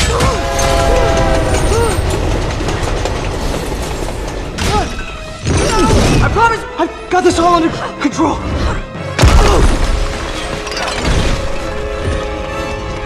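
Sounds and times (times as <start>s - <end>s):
train horn blaring: 0.1s - 2.3s.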